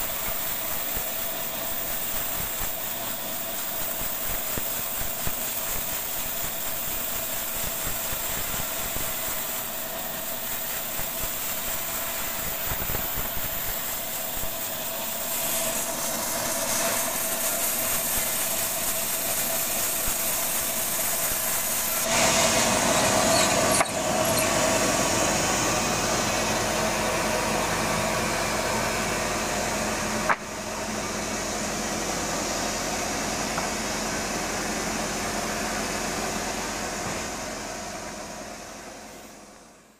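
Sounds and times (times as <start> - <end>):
band saw cutting wood: 0.0 - 26.5.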